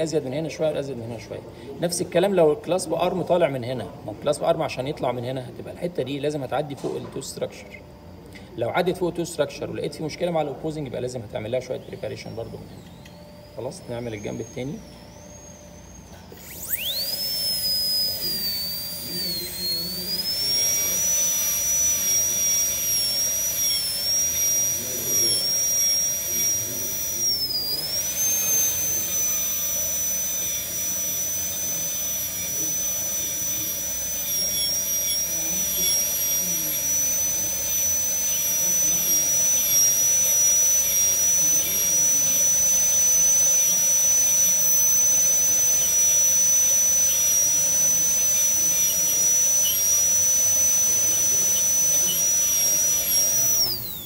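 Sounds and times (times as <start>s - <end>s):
dental drill whining: 0.0s - 54.0s.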